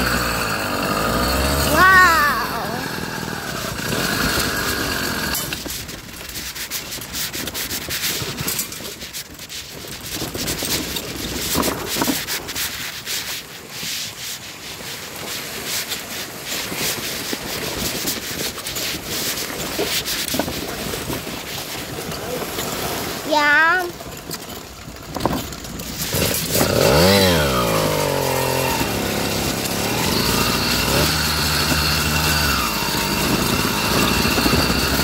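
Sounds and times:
trailer clicks and rattles: 0.0s - 13.4s, 15.8s - 35.0s
microphone scraping against fabric: 25.1s - 35.0s.

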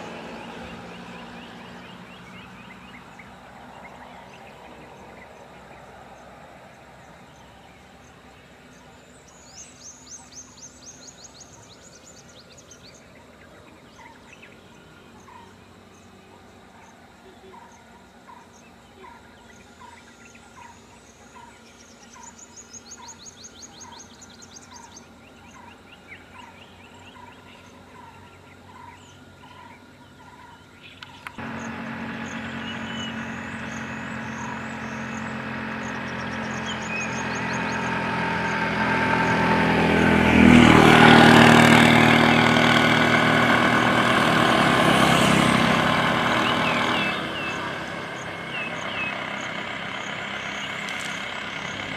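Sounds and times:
vehicle passing close: 0.0s - 8.6s, 31.4s - 51.9s
road traffic: 0.0s - 51.9s
bird chirps and trills: 16.8s - 39.6s, 44.5s - 51.9s.

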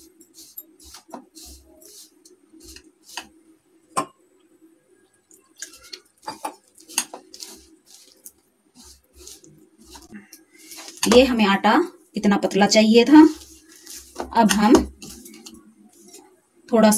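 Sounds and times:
fingers scraping through flour: 0.0s - 3.3s, 5.6s - 11.4s, 13.0s - 16.3s.

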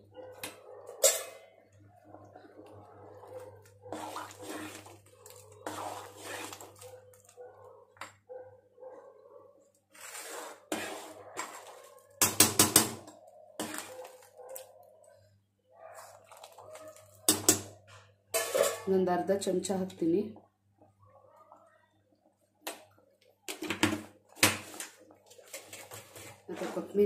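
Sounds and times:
metal spoon clinking against pot: 1.0s - 1.5s
stew bubbling in a pot: 1.5s - 8.1s.

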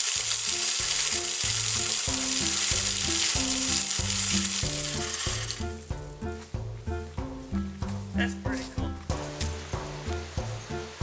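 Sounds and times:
feeder spinner flinging corn: 0.0s - 5.8s
background music with bass line: 0.0s - 11.0s.

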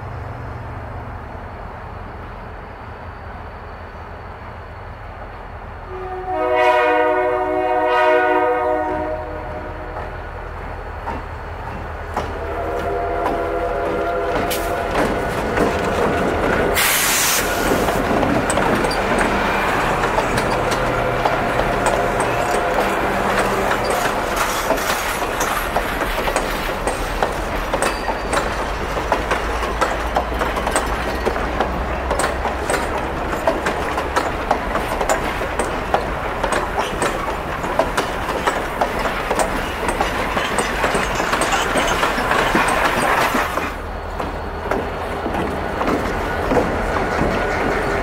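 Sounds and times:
train wheels rumbling: 0.0s - 48.0s
wheels clicking over rail joints: 11.0s - 48.0s.

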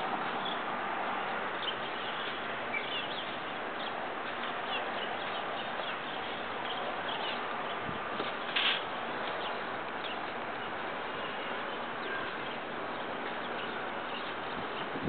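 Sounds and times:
bird chirps: 1.6s - 7.8s.

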